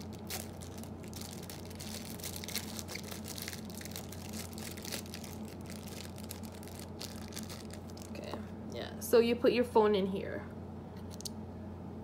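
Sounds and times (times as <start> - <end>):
plastic wrapping crinkling: 0.0 - 8.3
steady low hum: 0.0 - 12.0.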